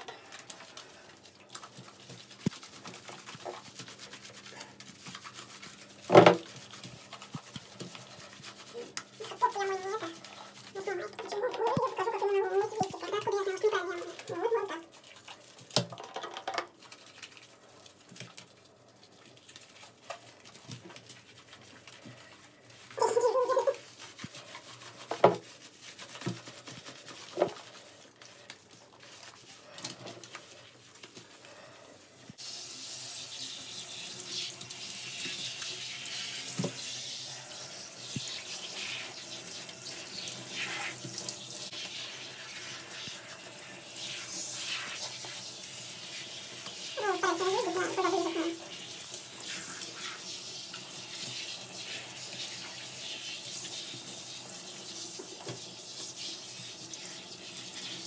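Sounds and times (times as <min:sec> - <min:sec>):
shower head spraying water: 0:22.9 - 0:27.7, 0:32.4 - 0:58.0.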